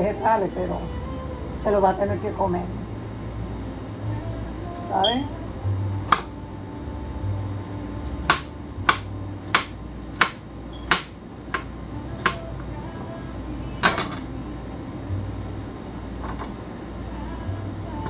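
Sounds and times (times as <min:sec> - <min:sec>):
knife chopping on cutting board: 0:06.1 - 0:06.3, 0:08.2 - 0:12.4.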